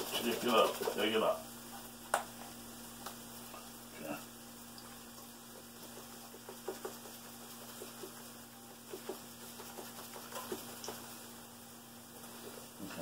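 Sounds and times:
cheese shaker tapping and rattling: 0.0s - 1.2s, 5.4s - 11.4s
faint steady hum: 0.0s - 13.0s.

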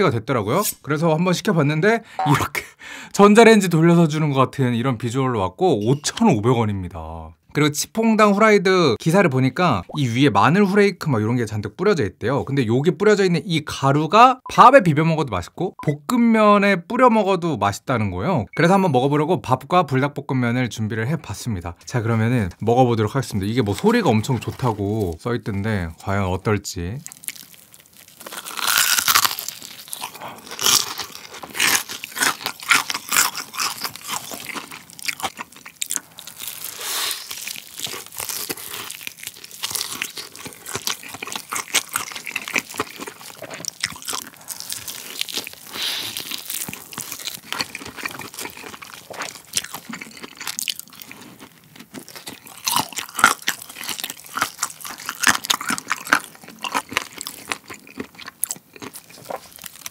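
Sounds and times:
crunchy chewing of fried chicken: 27.0s - 59.9s.

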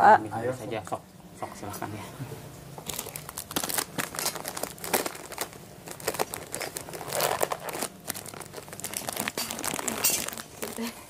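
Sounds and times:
plastic wrappers crinkling: 2.8s - 11.0s.

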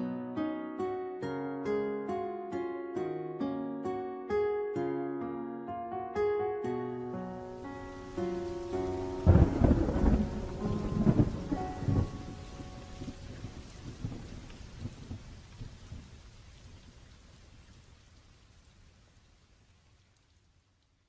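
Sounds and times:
plucked-string background music: 0.0s - 13.8s
rain: 7.2s - 21.0s
thunder rumble: 7.7s - 17.4s.

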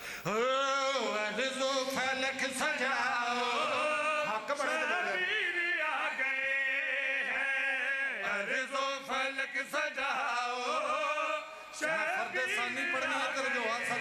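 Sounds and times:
man chanting into microphones: 0.2s - 14.0s.

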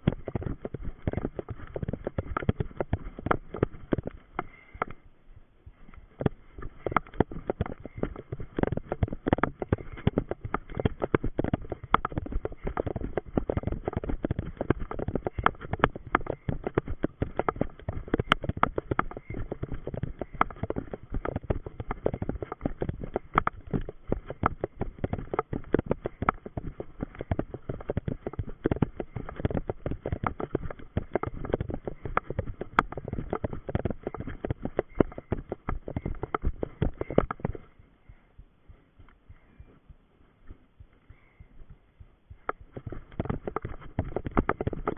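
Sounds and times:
running footsteps on dirt path: 0.0s - 44.9s.

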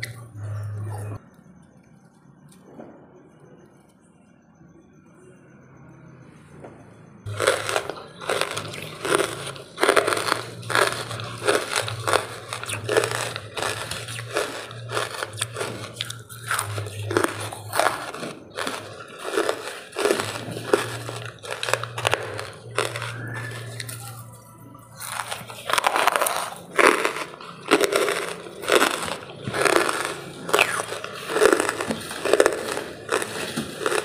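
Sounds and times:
charcoal crunching: 7.3s - 34.0s.

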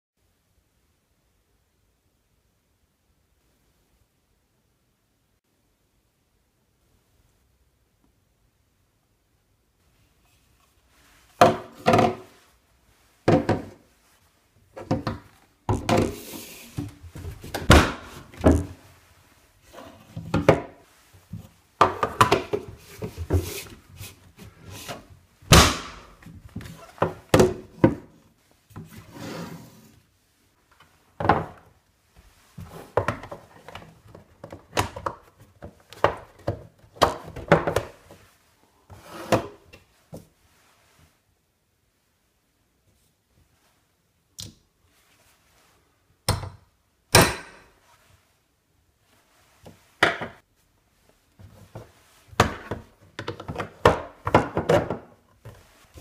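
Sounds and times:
plastic parts knocking and scraping: 11.3s - 12.4s, 14.8s - 18.8s, 19.6s - 28.1s, 51.4s - 56.0s.

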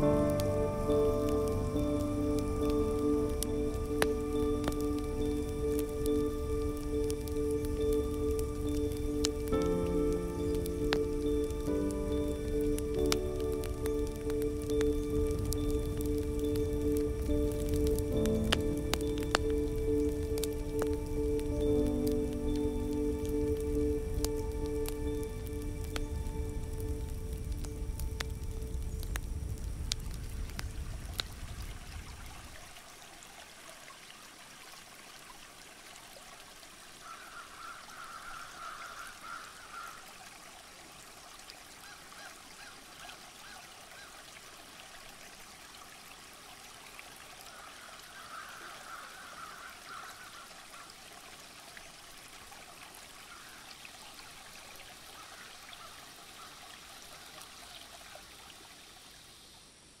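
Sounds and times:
background music: 0.0s - 30.6s
distant trickling water hiss: 0.0s - 60.0s
distant chattering bird calls: 37.0s - 40.1s.

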